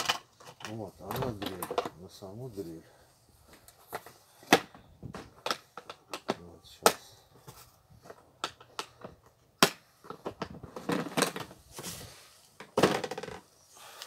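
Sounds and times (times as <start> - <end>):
plastic case and drill handled: 0.0 - 2.1, 7.3 - 13.5.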